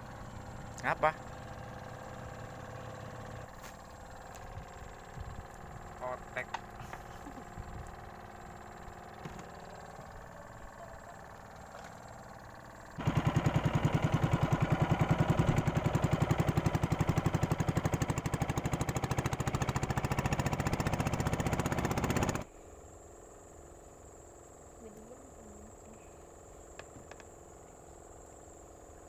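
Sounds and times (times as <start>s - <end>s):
boat engine pulsing: 0.0s - 22.5s.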